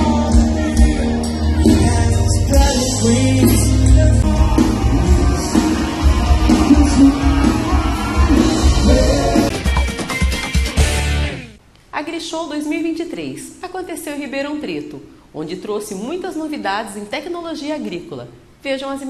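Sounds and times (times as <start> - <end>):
live band music: 0.0 - 11.6.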